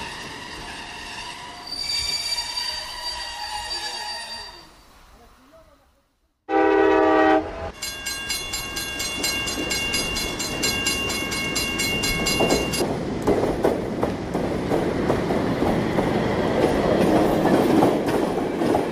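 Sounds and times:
short horn blast: 6.5 - 7.7
train cars rumbling and clacking on track: 7.7 - 18.9.

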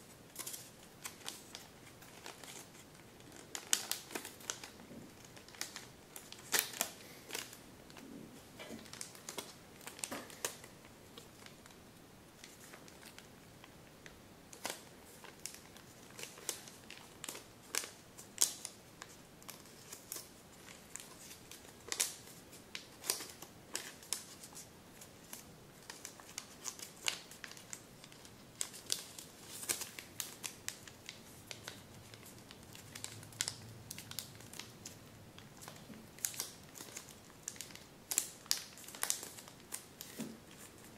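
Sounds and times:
paper crinkling and crackling: 0.3 - 11.8, 12.4 - 40.9.

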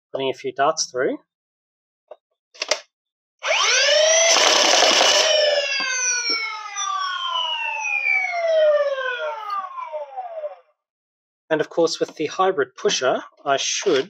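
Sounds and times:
toy blaster dart fire: 3.4 - 6.6
flywheel motors whining: 3.4 - 8.0.

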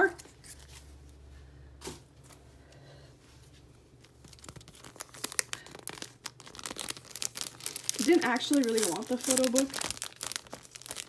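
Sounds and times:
plastic sleeve crinkling: 3.9 - 11.0.

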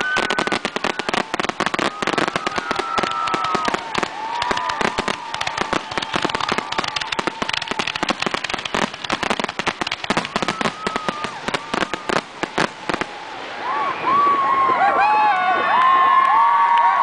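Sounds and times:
firework barrage bangs and crackling: 0.0 - 13.3.

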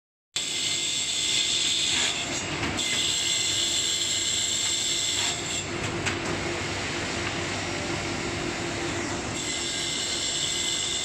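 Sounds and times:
low machine hum: 5.4 - 11.0
circular saw high whine: 8.4 - 11.0.

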